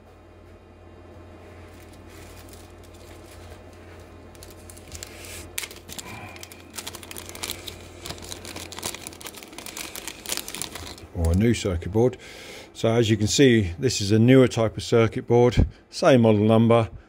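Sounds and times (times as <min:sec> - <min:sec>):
low steady hum: 0:00.0 - 0:17.0
plastic bag crinkling: 0:01.6 - 0:11.6.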